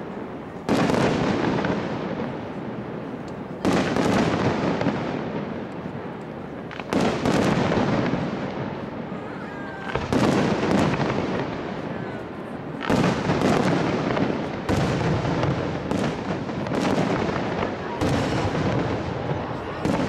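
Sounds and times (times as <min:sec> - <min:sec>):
rumbling firework tail: 0:07.0 - 0:20.0.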